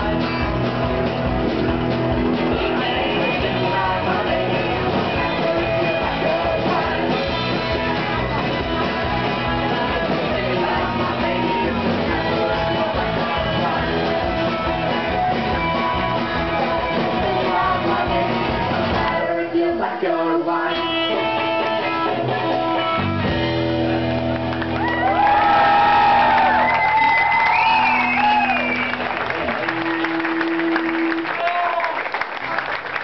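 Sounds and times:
rock band playing live: 0:00.0 - 0:19.4, 0:20.7 - 0:31.3
person singing: 0:02.3 - 0:23.0.

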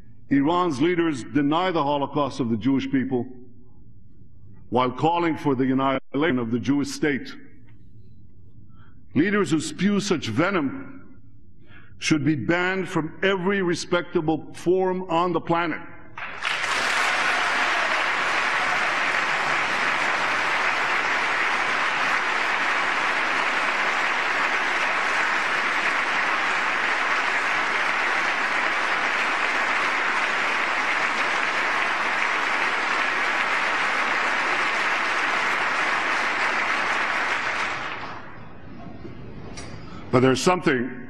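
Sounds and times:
large audience applauding: 0:16.2 - 0:38.4.

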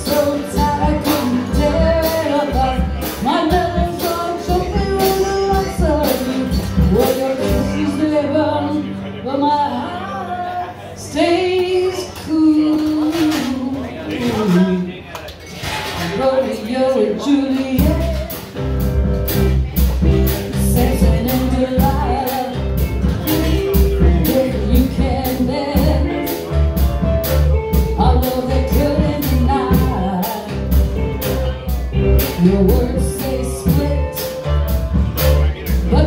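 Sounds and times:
drums: 0:00.0 - 0:09.9, 0:10.9 - 0:36.0
woman singing: 0:00.0 - 0:14.7, 0:16.0 - 0:18.5, 0:20.0 - 0:26.6, 0:27.7 - 0:30.8, 0:32.2 - 0:35.0, 0:35.7 - 0:36.0
electric guitars: 0:17.6 - 0:36.0
heavy bass line: 0:17.8 - 0:36.0.

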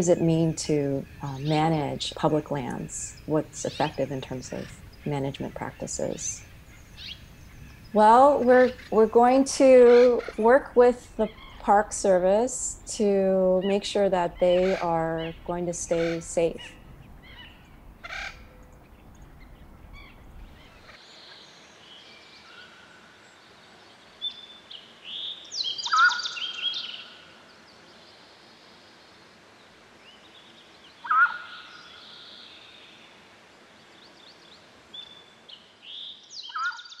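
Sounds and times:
birds calling: 0:00.0 - 0:21.7, 0:24.2 - 0:27.3, 0:30.1 - 0:33.0, 0:34.0 - 0:37.0
faint bird chirps: 0:14.4 - 0:27.2, 0:34.3 - 0:37.0.

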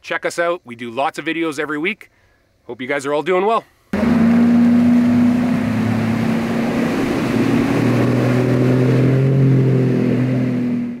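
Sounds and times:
rushing water: 0:04.0 - 0:10.9
outboard motors at high speed: 0:04.0 - 0:11.0.

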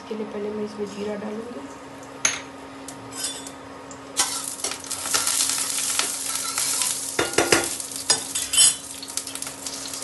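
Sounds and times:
seeds sizzling in hot oil: 0:04.2 - 0:10.0.

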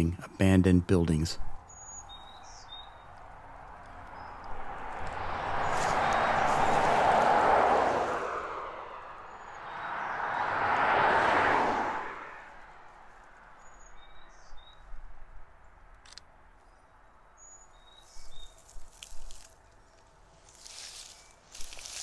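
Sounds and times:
birds chirping: 0:00.0 - 0:07.4, 0:09.0 - 0:10.9, 0:13.4 - 0:15.0, 0:15.6 - 0:22.0
vehicle passing by: 0:02.1 - 0:14.1
sharp clicks: 0:16.0 - 0:16.3.

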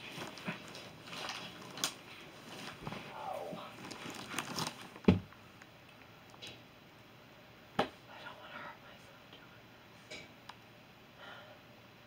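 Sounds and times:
plastic wrap and cardboard crinkling: 0:00.0 - 0:05.4.

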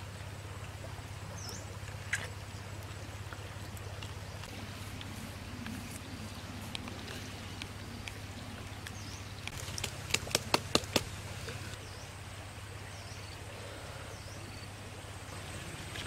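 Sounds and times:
low outdoor background: 0:00.0 - 0:16.0
sharp wooden clicks: 0:09.5 - 0:11.2.

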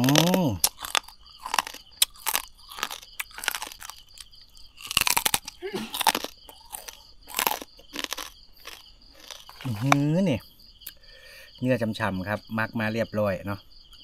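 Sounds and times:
crunching crispy skin: 0:00.0 - 0:10.2
crickets chirping: 0:00.0 - 0:14.0.

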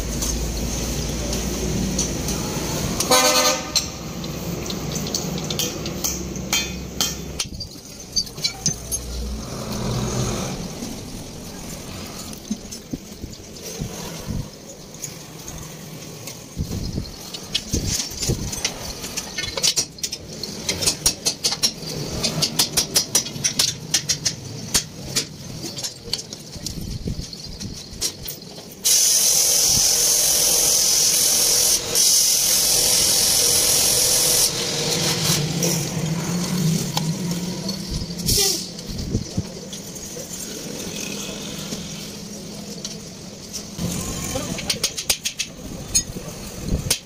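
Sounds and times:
metal leaf springs clinking: 0:00.0 - 0:47.0
loud steady hiss: 0:28.8 - 0:36.9.

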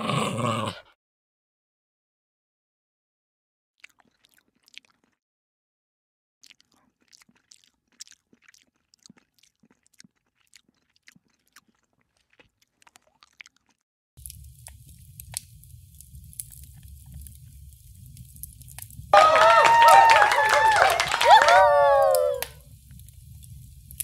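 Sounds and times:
cat nibbling cling film: 0:14.2 - 0:19.0.

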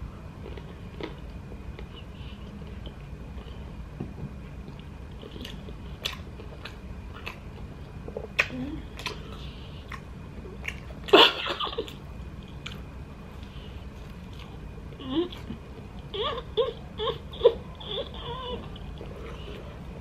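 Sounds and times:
chewing sandwich with mouth clicks: 0:04.6 - 0:11.1.

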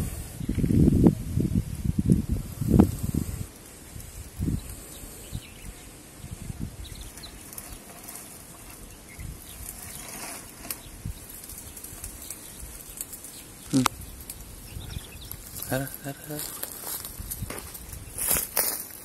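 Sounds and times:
snake rustling in dry leaves: 0:01.2 - 0:19.0
faint bird or insect chirps: 0:04.0 - 0:16.6.

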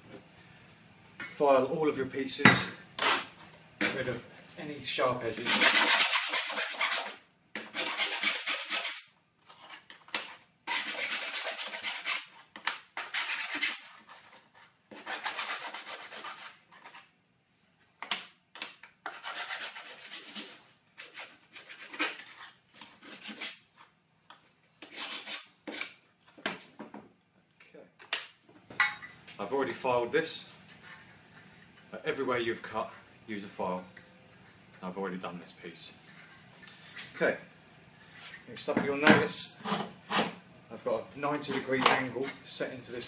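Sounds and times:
hand file rasping on steel: 0:05.4 - 0:09.1, 0:10.7 - 0:12.3, 0:19.1 - 0:23.6.

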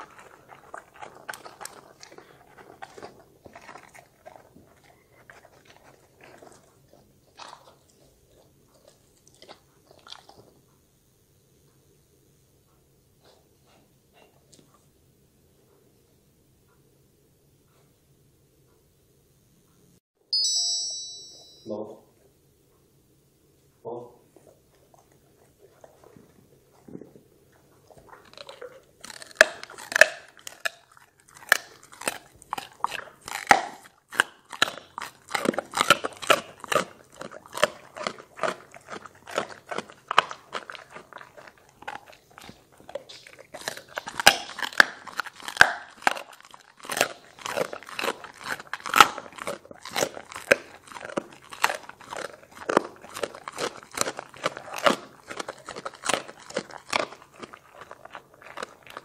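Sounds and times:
dog crunching vegetable: 0:00.0 - 0:10.8, 0:24.3 - 0:59.0.

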